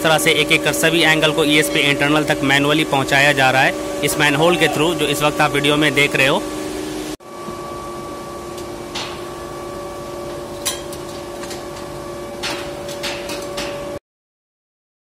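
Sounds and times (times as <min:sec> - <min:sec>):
industrial machinery hum: 0:00.0 - 0:14.0
sharp metallic knocks and clanks: 0:08.9 - 0:09.4, 0:10.5 - 0:14.0.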